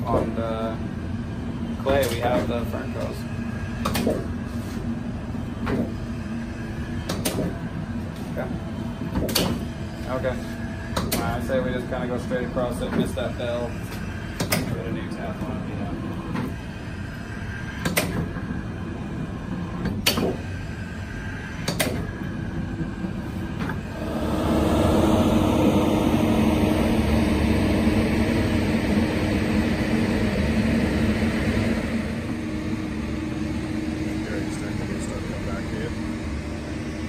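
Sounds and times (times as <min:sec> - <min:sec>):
engine humming: 0:22.6 - 0:37.0.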